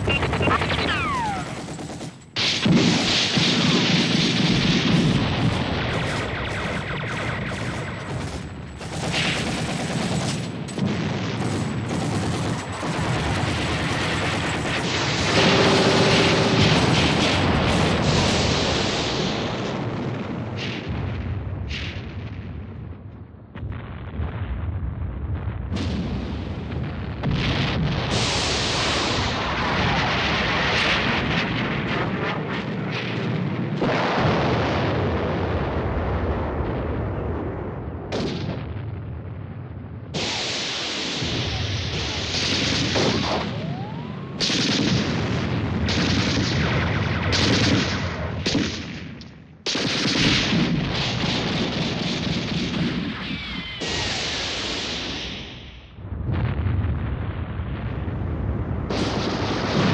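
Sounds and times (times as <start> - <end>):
gunfire: 0.0 - 19.6, 40.2 - 55.5
explosions: 0.0 - 59.9.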